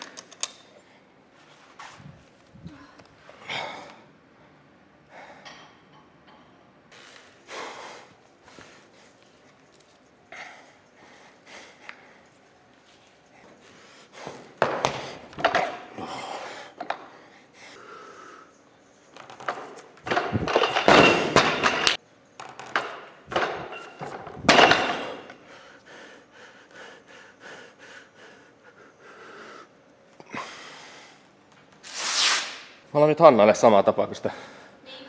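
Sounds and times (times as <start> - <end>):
person breathing hard: 15.9 - 18.6, 25.3 - 31.3.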